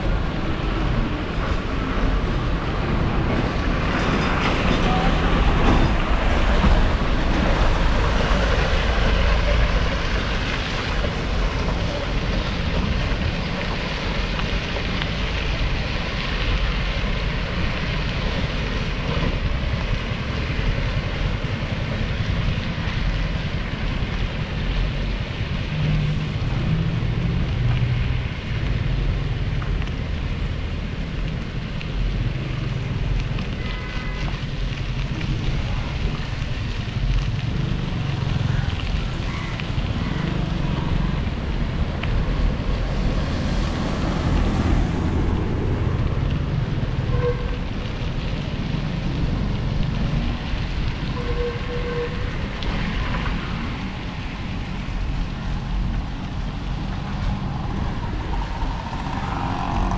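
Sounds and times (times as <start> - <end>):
road traffic: 0.0 - 59.9.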